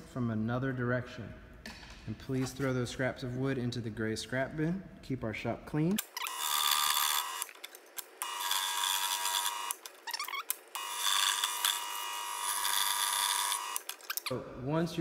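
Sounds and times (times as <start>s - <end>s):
scroll saw cutting wood: 6.1s - 14.3s.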